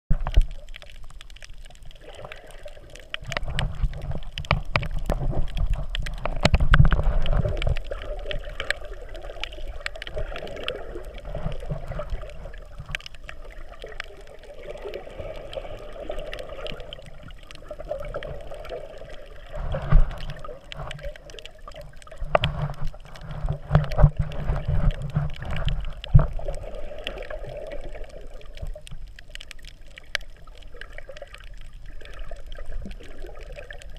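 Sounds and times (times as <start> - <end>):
small clicks underwater: 0.1 - 33.9
water sloshing and gurgling: 0.1 - 33.9.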